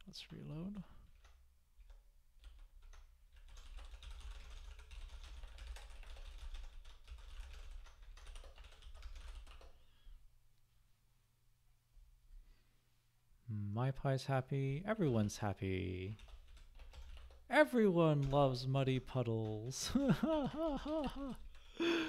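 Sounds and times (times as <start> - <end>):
fast keyboard typing: 0.1 - 9.8, 16.0 - 21.8.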